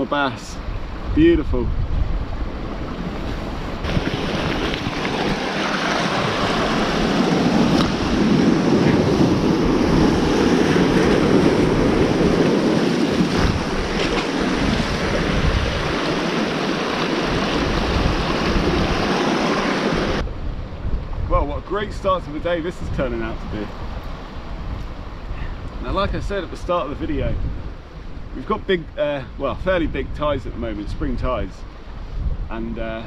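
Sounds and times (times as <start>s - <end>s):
wind buffeting microphone: 0.6s - 33.0s
sea water surging over rocks: 2.4s - 20.2s.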